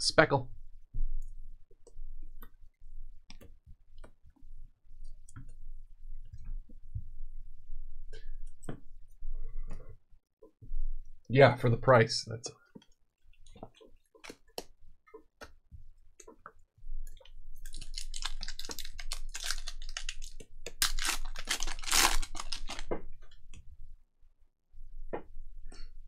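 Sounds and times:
wrapper tearing and crinkling: 0:17.6 - 0:22.9.

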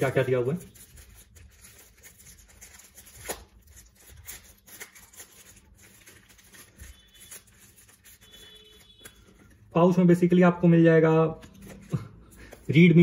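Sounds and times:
plastic pouch crinkling: 0:00.0 - 0:09.7
paper cards sliding: 0:11.4 - 0:12.8.

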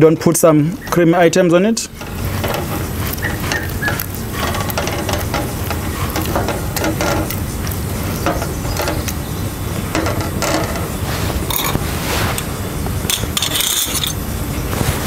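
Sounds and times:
spoon scraping saucepan: 0:01.9 - 0:12.5.

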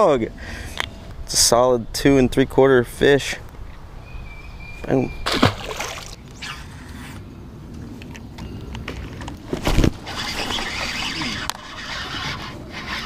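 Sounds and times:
fish splashing into water: 0:05.2 - 0:06.2.

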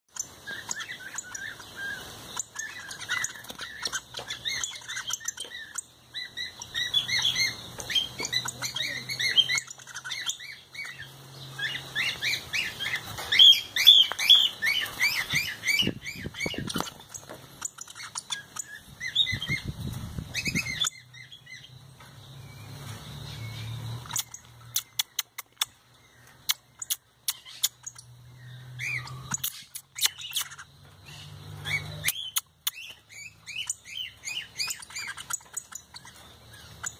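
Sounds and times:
bird chirping song: 0:00.1 - 0:36.9
sharp clicks: 0:24.0 - 0:28.1, 0:29.2 - 0:30.6.

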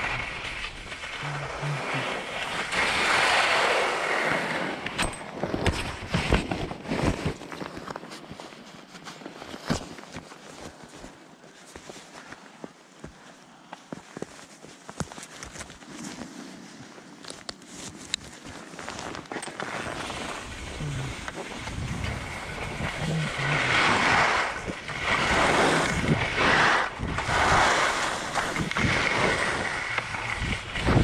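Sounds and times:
skis hissing over snow: 0:00.0 - 0:04.8, 0:17.9 - 0:31.0.

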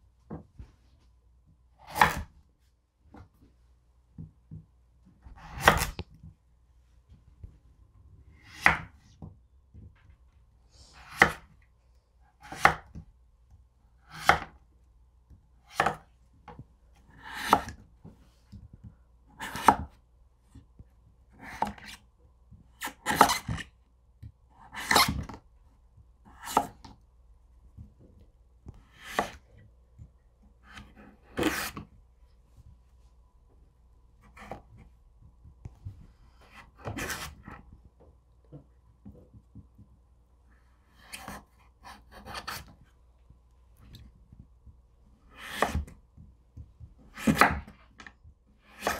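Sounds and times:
knife slicing squash: 0:01.8 - 0:02.3, 0:05.3 - 0:06.0, 0:08.4 - 0:09.0, 0:11.0 - 0:11.5, 0:12.4 - 0:13.0, 0:14.1 - 0:14.5, 0:15.7 - 0:16.0, 0:17.0 - 0:17.8, 0:19.4 - 0:19.9, 0:21.4 - 0:22.0, 0:22.8 - 0:23.7, 0:24.6 - 0:25.4, 0:26.3 - 0:26.9, 0:28.8 - 0:29.5, 0:30.6 - 0:31.9, 0:34.2 - 0:34.8, 0:36.4 - 0:37.6, 0:41.0 - 0:42.7, 0:45.3 - 0:46.0, 0:47.0 - 0:47.8, 0:48.6 - 0:48.9.

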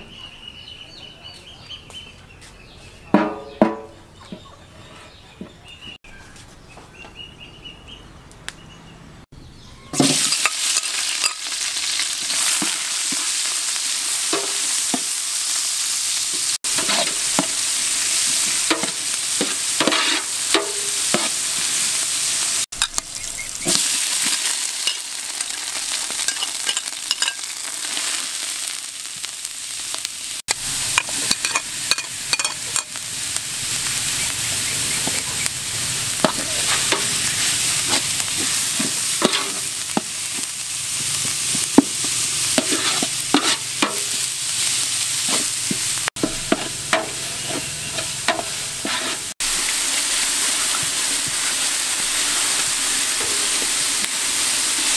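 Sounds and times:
onions sizzling in hot oil: 0:09.9 - 0:54.9
metal spatula scraping pot: 0:16.7 - 0:17.6, 0:18.7 - 0:21.4, 0:31.0 - 0:33.0, 0:36.2 - 0:40.5, 0:42.5 - 0:44.3, 0:45.2 - 0:49.3.

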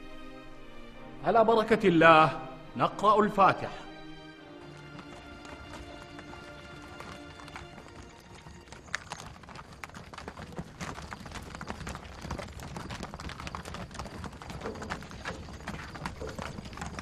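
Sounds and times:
hooves clip-clopping on gravel: 0:04.4 - 0:17.0.

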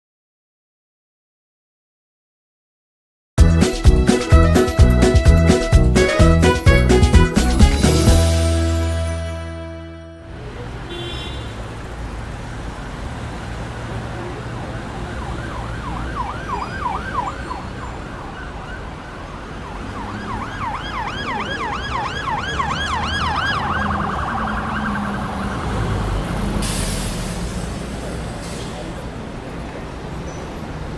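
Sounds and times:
low traffic rumble: 0:03.4 - 0:30.9
siren yelping: 0:14.7 - 0:26.4
burst of hiss: 0:26.6 - 0:28.9.

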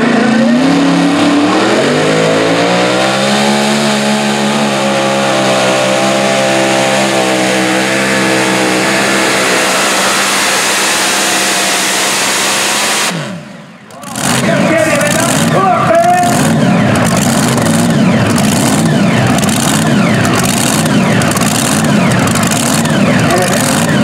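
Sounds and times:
tractor engine revving: 0:00.0 - 0:24.0.

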